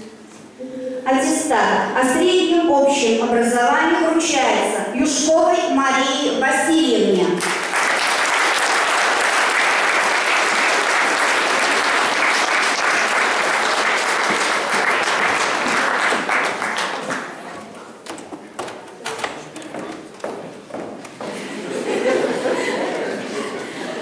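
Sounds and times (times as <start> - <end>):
audience clapping: 7.4 - 24.0.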